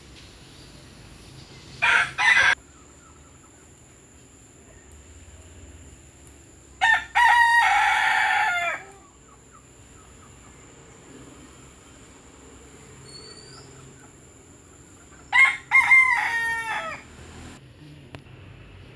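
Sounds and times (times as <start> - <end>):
rooster crowing: 1.8 - 2.6, 6.8 - 9.2, 15.2 - 17.2.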